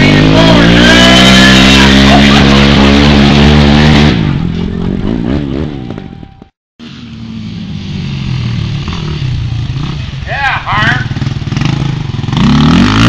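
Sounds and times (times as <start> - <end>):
atv engine revving: 0.0 - 6.2, 6.8 - 13.0.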